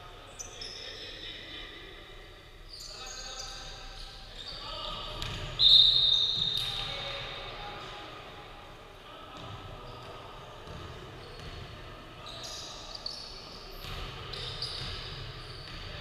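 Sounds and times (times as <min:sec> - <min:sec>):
sneakers squeaking on floor: 0:00.4 - 0:01.1, 0:02.7 - 0:07.4, 0:09.3 - 0:16.0
basketball bouncing: 0:10.6 - 0:11.6.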